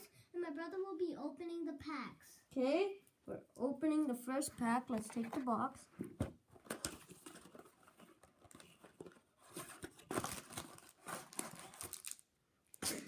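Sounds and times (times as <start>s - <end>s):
wrapping and cardboard crinkling: 6.6s - 12.3s.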